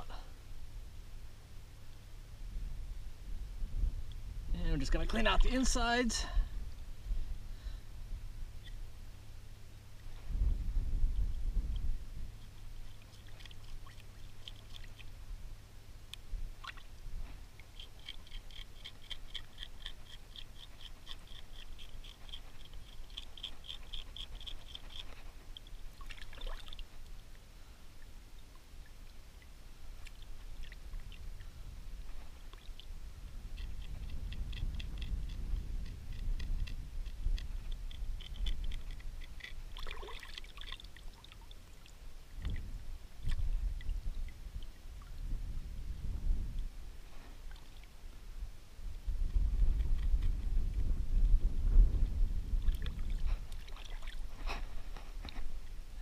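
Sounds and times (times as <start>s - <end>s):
wind rumbling on microphone: 0.0s - 27.3s, 29.9s - 40.2s, 42.2s - 56.0s
water trickling and splashing: 11.7s - 15.4s, 16.1s - 32.9s, 37.4s - 45.4s, 52.5s - 55.7s
fish being scraped: 17.7s - 25.7s.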